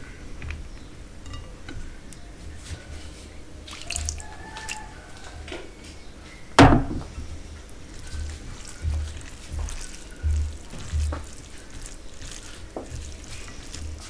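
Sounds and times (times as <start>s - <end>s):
wet squelches of fingers mixing: 3.6s - 5.5s, 7.2s - 14.0s
gravy splashing onto plate: 3.7s - 4.9s.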